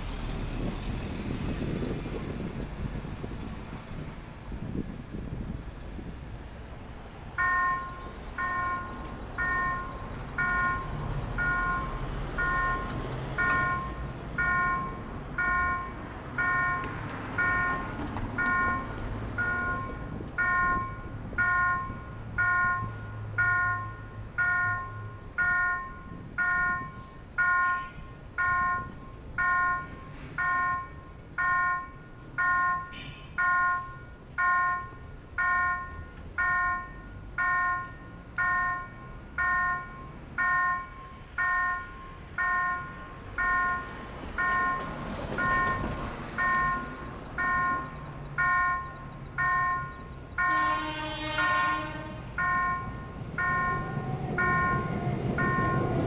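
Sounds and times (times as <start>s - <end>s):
traffic rumble: 0.0s - 56.0s
vehicle idling: 0.0s - 56.0s
level crossing bell ringing: 7.4s - 50.7s, 52.4s - 56.0s.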